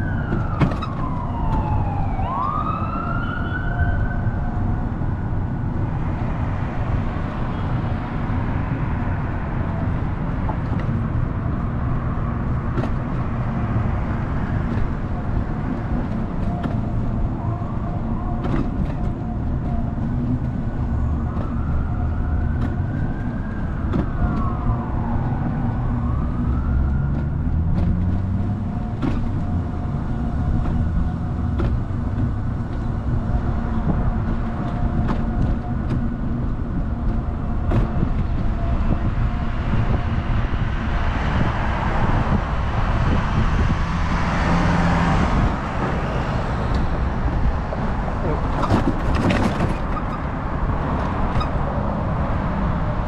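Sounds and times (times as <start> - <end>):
siren wailing: 0.0 - 4.9, 21.0 - 27.6
car engine and tyre rumble: 0.0 - 53.0.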